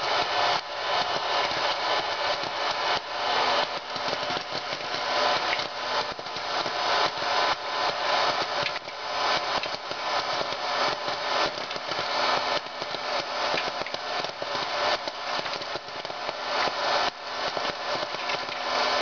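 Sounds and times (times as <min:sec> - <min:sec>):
popcorn kernels popping: 0:00.0 - 0:19.0
popcorn maker fan blowing: 0:00.0 - 0:19.0.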